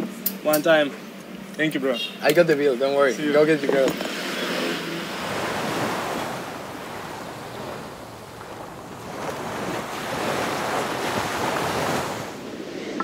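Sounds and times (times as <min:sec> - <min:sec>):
ocean surf washing in: 0:04.7 - 0:13.0.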